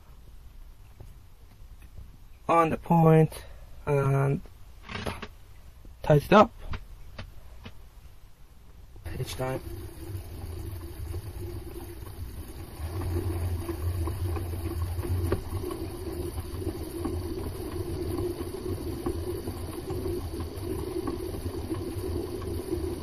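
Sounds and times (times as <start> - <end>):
lathe motor humming: 9.0 - 23.0.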